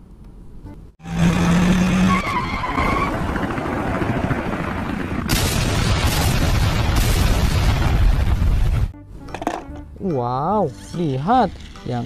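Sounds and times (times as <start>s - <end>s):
cartoon explosion blast: 5.3s - 8.9s.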